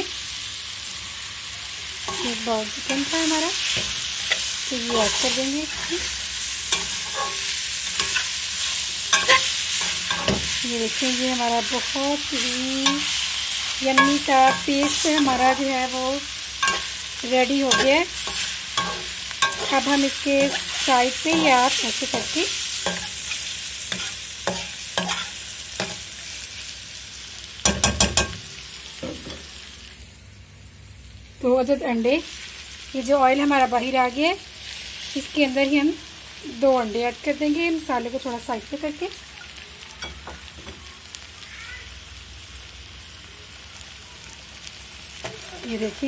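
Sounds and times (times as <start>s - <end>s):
oil sizzling: 0.0s - 46.0s
metal spatula scraping a pot: 2.1s - 10.6s, 16.6s - 17.1s, 17.7s - 26.0s
spatula clanking against pot: 9.1s - 10.5s, 14.0s - 15.4s, 16.6s - 17.0s, 17.7s - 19.8s, 21.3s - 26.0s, 27.7s - 28.4s.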